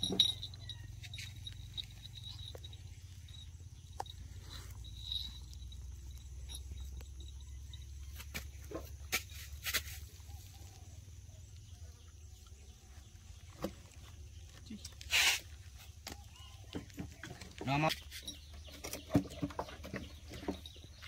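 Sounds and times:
animals scuffling: 0:00.0 - 0:11.1, 0:12.6 - 0:21.0
faint squeaks: 0:00.0 - 0:11.5.

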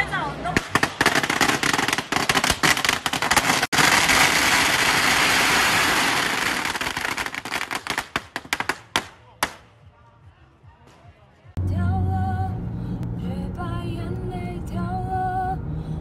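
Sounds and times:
firecrackers crackling: 0:00.4 - 0:09.9.

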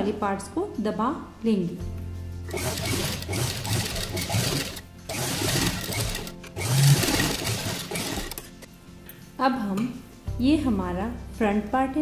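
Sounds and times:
sewing machine stitching: 0:02.5 - 0:08.5.

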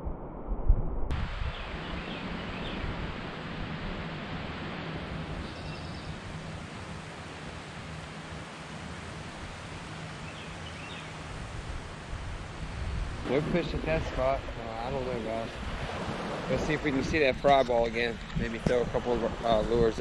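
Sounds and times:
outdoor background hiss: 0:01.1 - 0:20.0.

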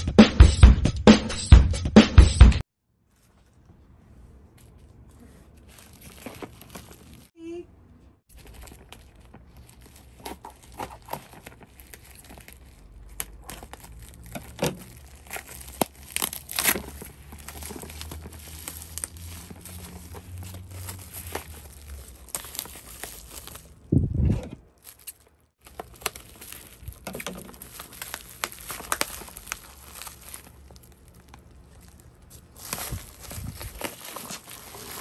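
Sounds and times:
plastic mailer tearing and crinkling: 0:05.6 - 0:07.4, 0:08.3 - 0:23.9, 0:24.8 - 0:35.0.

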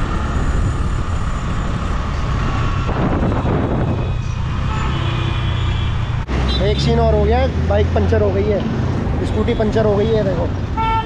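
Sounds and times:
scooter engine and wind rumble: 0:00.0 - 0:06.3.

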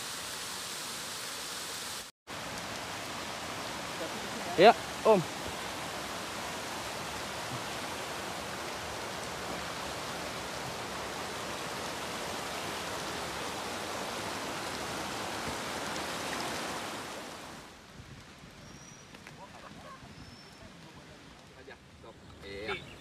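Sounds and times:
water rushing over rocks: 0:00.0 - 0:17.9.

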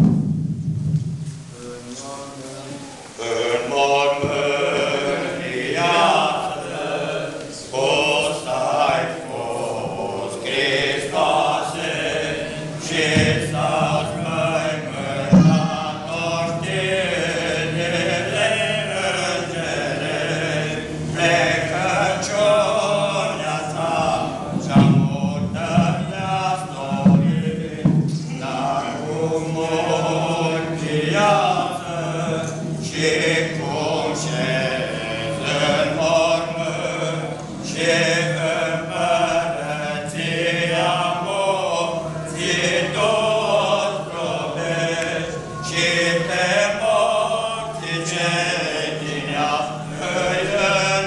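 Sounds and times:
thump: 0:00.0 - 0:01.4, 0:13.1 - 0:14.2, 0:15.3 - 0:15.8, 0:24.5 - 0:26.1, 0:26.9 - 0:28.3
men singing a hymn: 0:03.1 - 0:51.0.

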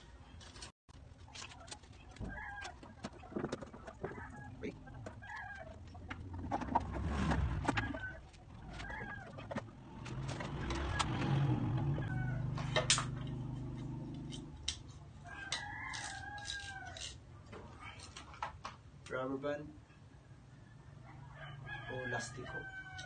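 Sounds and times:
chickens clucking: 0:01.6 - 0:11.3
rooster crowing: 0:10.8 - 0:12.8, 0:15.2 - 0:17.2, 0:20.7 - 0:23.0.

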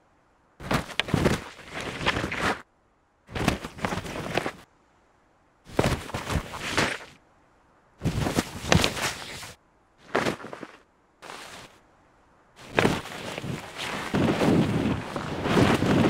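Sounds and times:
skis rushing through powder snow: 0:08.0 - 0:11.7, 0:12.6 - 0:16.0.

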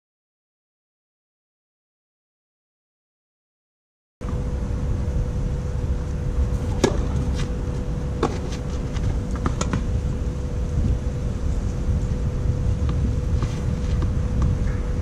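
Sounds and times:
wind rumble on microphone: 0:04.2 - 0:15.0
racket hitting tennis ball: 0:06.5 - 0:09.9, 0:12.8 - 0:14.8
ball bouncing: 0:06.7 - 0:09.9.

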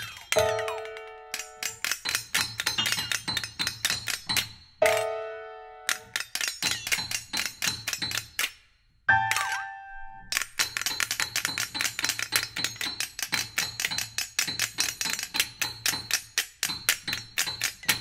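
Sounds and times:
flexatones and piano clicking and tapping: 0:00.0 - 0:18.0.

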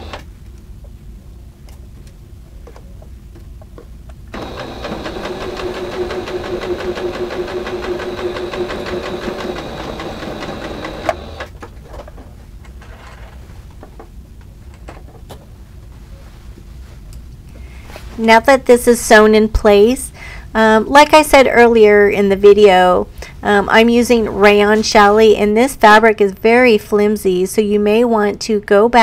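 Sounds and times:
sewing machine stitching: 0:00.0 - 0:00.2, 0:04.3 - 0:11.5.

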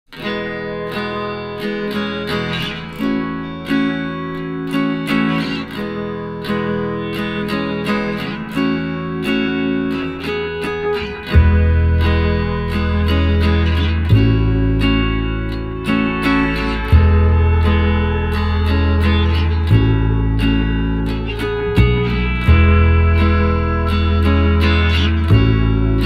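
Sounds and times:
strummed guitar: 0:00.1 - 0:26.0
deep bass part: 0:11.3 - 0:26.0.

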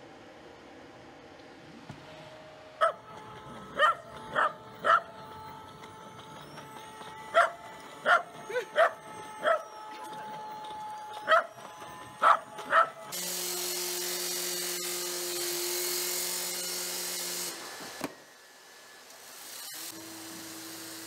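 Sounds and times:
small dog barking: 0:03.8 - 0:05.0, 0:07.4 - 0:08.2, 0:11.3 - 0:11.5.

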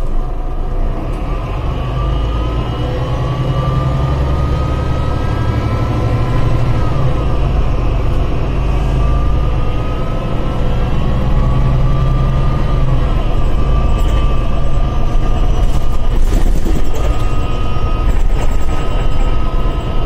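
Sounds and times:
bus engine rumble with whine: 0:00.0 - 0:20.0.

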